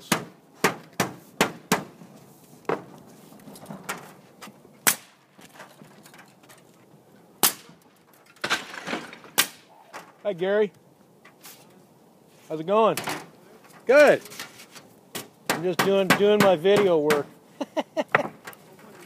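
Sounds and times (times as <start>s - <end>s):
nails driven into metal roofing: 0.0s - 3.0s, 7.4s - 10.2s, 14.2s - 17.3s.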